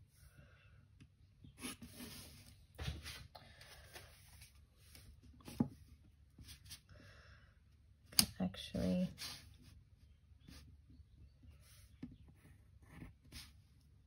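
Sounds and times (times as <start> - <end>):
pencil scratching on paper: 11.5 - 13.6.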